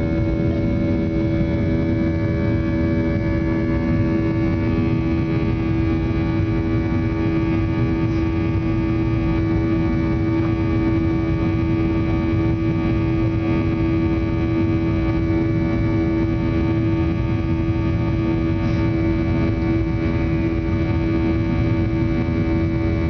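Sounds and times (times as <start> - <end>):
airliner engines droning in cabin: 0.0 - 23.0.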